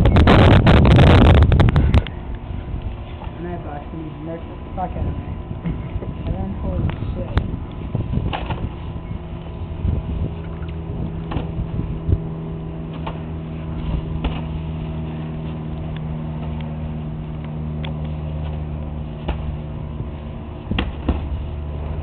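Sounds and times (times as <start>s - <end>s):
low mechanical hum: 0.0s - 22.0s
boxing gloves smacking: 14.2s - 14.5s, 19.2s - 19.6s, 20.7s - 21.4s.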